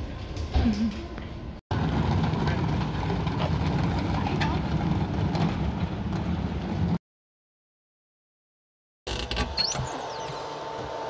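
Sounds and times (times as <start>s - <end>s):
moving vehicle rumble: 0.0s - 7.0s.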